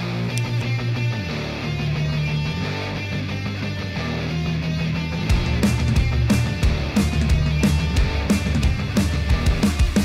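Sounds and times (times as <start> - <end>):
rock music chords: 0.0 - 10.0
drum beat: 5.3 - 10.0.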